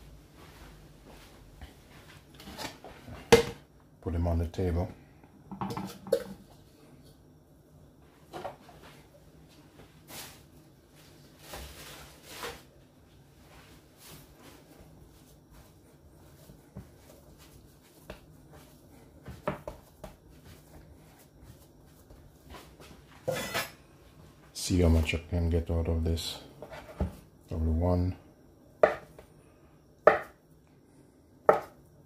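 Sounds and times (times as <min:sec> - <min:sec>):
hands kneading dough: 0:09.8 - 0:23.2.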